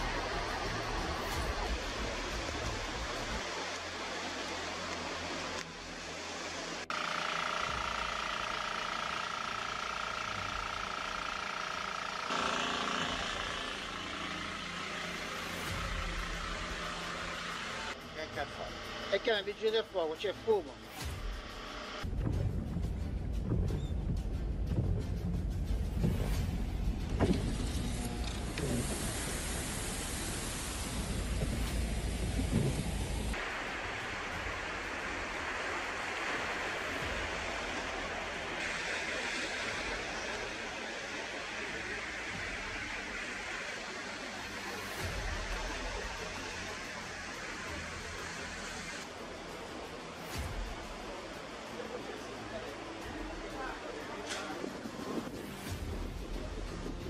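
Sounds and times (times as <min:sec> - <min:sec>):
water pump engine with high whine: 0:00.0 - 0:19.5, 0:25.9 - 0:54.0
bright hissy noise: 0:00.0 - 0:22.0, 0:27.3 - 0:57.0
low road rumble: 0:20.8 - 0:57.0.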